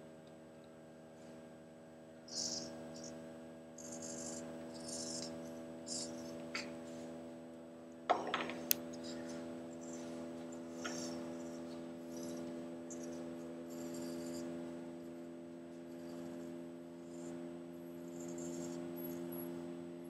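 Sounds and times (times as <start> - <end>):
electrical hum: 0.0 - 20.0.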